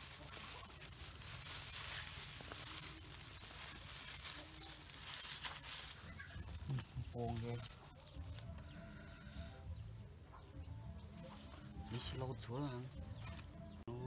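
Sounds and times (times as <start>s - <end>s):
straw rustling and crackling: 0.0s - 10.0s, 10.6s - 14.0s.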